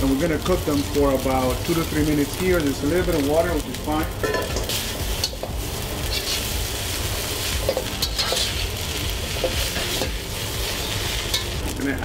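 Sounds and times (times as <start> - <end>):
noodles sizzling in a wok: 0.0 - 12.0
metal spatula scraping pan: 4.2 - 6.5, 7.6 - 11.6.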